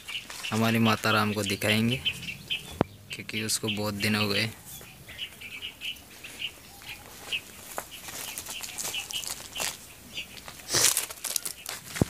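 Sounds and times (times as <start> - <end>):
footsteps on dry straw and rubble: 0.0 - 1.9, 6.1 - 12.0
small birds chirping: 0.0 - 12.0.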